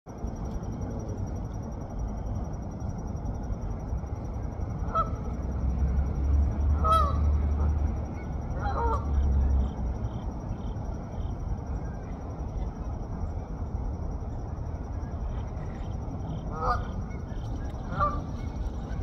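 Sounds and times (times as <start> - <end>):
low rumble: 0.1 - 19.0
goose honking: 6.8 - 7.3, 8.6 - 9.1, 17.8 - 18.4.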